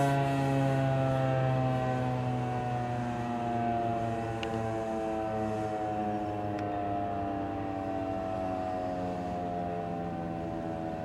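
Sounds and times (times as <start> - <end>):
siren winding down: 0.0 - 11.0.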